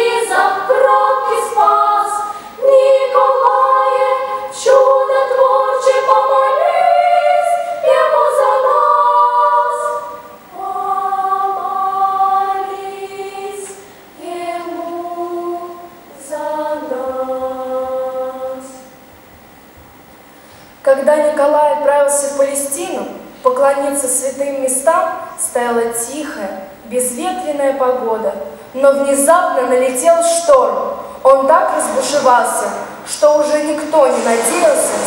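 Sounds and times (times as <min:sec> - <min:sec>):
girls' choir singing unaccompanied: 0:00.0 - 0:19.2, 0:21.3 - 0:35.0
singers breathing: 0:02.2 - 0:02.6, 0:20.3 - 0:20.8.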